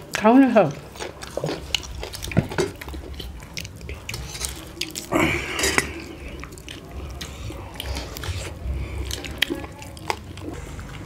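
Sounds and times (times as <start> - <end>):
chewing and mouth smacks: 0.0 - 11.0
breathy vocal sound: 5.0 - 9.3.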